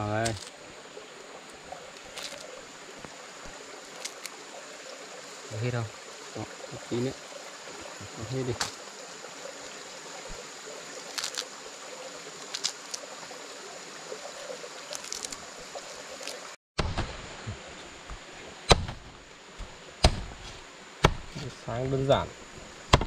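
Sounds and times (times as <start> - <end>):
flowing water rushing: 0.0 - 23.0
sharp knocks: 18.7 - 19.1, 20.0 - 20.4.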